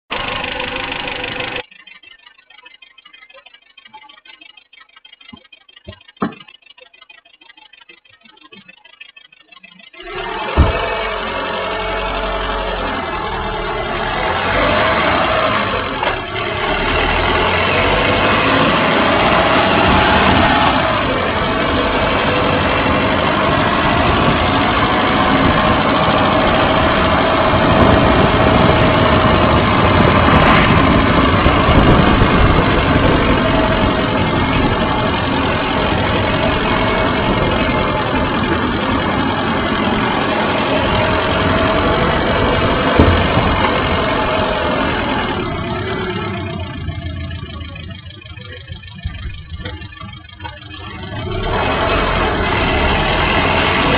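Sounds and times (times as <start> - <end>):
wind noise: 22.4 - 45.5.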